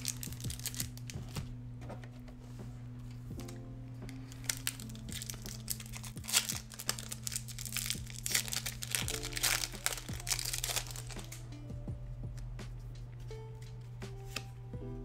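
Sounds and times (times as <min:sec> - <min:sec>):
foil wrapper crinkling and tearing: 0:00.0 - 0:01.5, 0:03.4 - 0:11.6
soft background music: 0:00.0 - 0:15.0.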